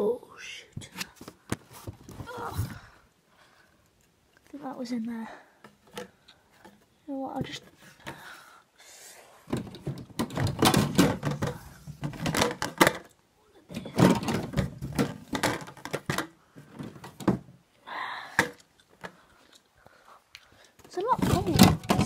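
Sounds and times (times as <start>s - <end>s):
parts clicking and knocking: 9.5s - 17.4s, 20.3s - 22.0s.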